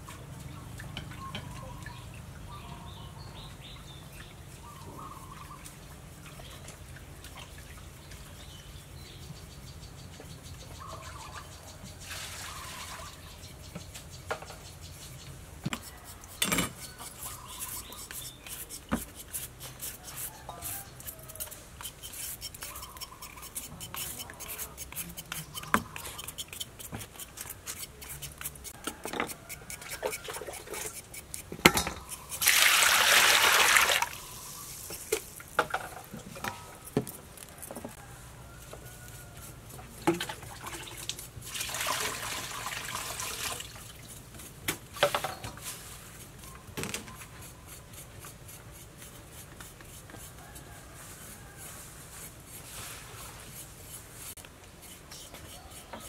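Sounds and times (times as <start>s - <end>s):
peeler scraping carrot: 15.7s - 32.5s, 45.3s - 50.8s, 52.2s - 56.0s
water sloshing in metal bowl: 40.0s - 44.1s.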